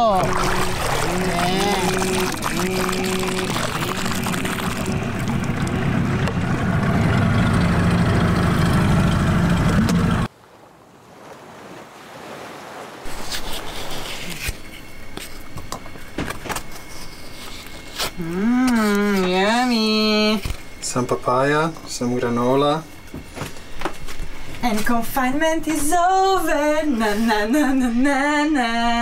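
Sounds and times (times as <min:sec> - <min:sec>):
small outboard motor running: 0:00.0 - 0:10.3
water noise: 0:00.0 - 0:23.3
wind: 0:00.0 - 0:29.0.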